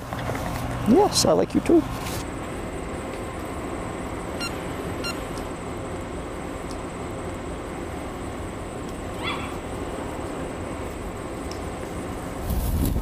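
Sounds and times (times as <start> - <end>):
outdoor background noise: 0.0 - 13.0
short high squeak: 4.4 - 5.2.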